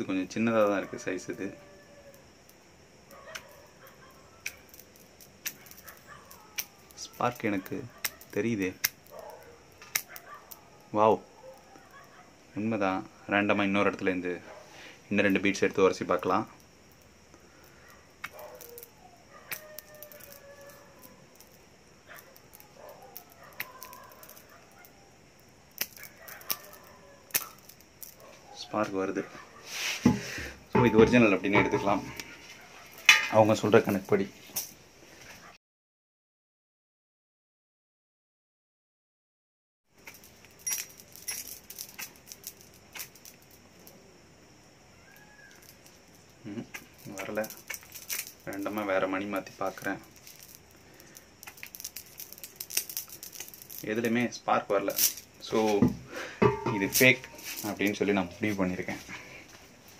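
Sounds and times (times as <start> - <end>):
crystal beads clicking: 0.4 - 12.2, 15.0 - 28.4, 30.1 - 34.7, 40.0 - 44.1, 44.9 - 55.6, 56.4 - 59.3.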